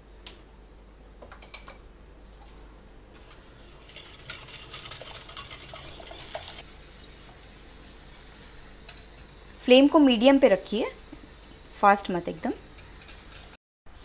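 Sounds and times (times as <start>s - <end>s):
whisk scraping metal pot: 3.2s - 13.6s.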